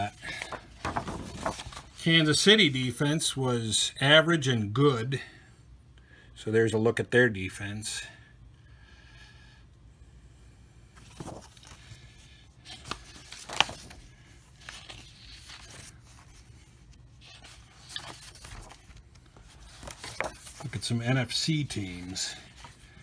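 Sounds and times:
cards rustling and flicking: 0.0s - 2.2s, 11.0s - 23.0s.

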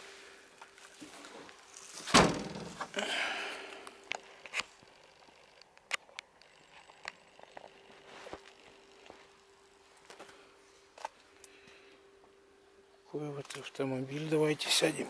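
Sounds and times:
faint steady hum: 0.0s - 15.0s
car hatch slamming shut: 2.1s - 2.9s.

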